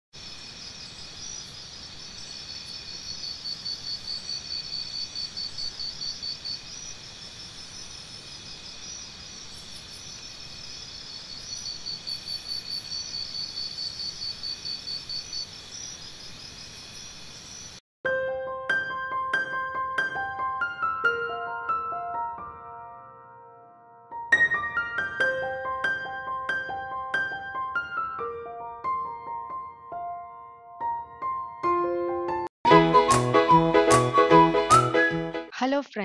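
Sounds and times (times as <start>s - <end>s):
insects chirring: 0.2s - 17.8s
piano music: 18.0s - 35.5s.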